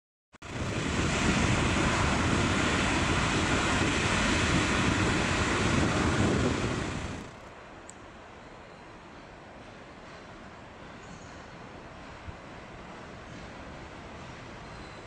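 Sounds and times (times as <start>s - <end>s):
wind on microphone: 0.4s - 7.4s
electric locomotives passing: 0.4s - 15.0s.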